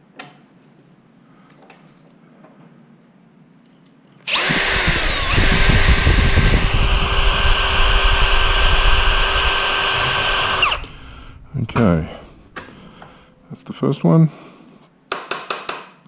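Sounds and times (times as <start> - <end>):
cordless drill whining: 4.3 - 11.5.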